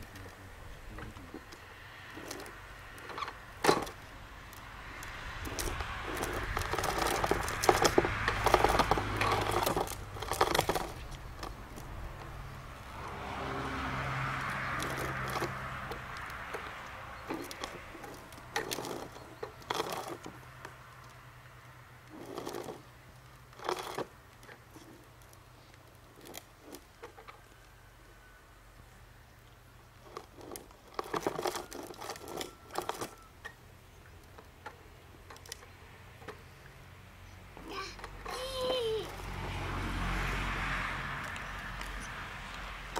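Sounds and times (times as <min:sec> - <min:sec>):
wheels knocking over joints: 0:00.0 - 0:27.6, 0:29.8 - 0:36.7, 0:37.5 - 0:42.9
plastic toy wheels rattling on paving: 0:00.0 - 0:28.0, 0:29.4 - 0:36.6, 0:37.5 - 0:42.9.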